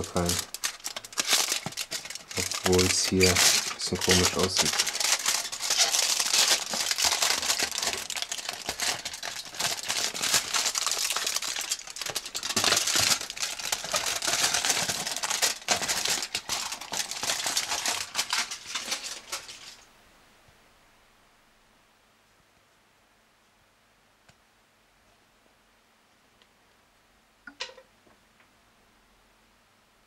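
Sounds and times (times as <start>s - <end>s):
foil wrapper crinkling: 0.0s - 19.9s.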